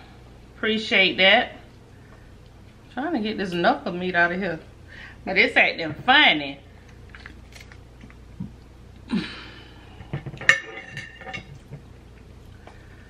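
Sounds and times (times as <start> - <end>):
utensil clinking on dish: 10.2 - 11.8.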